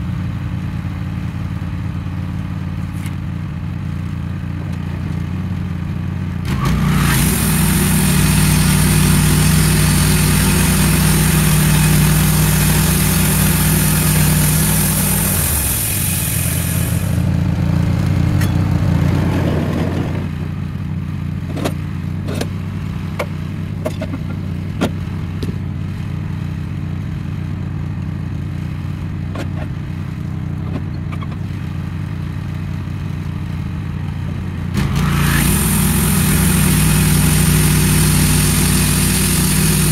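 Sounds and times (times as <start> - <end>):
sawmill engine running: 2.8 - 20.8, 33.7 - 39.9
band blade hissing in wood: 6.6 - 17.3, 35.0 - 39.9
sharp clicks and knocks: 21.5 - 25.6.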